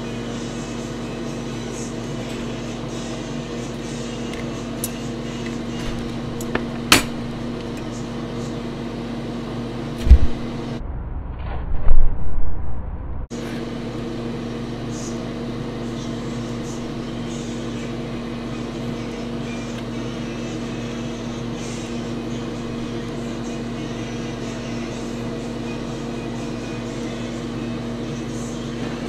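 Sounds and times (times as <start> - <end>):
appliance hum: 0.0 - 29.0
heavy low thumps: 10.0 - 13.3.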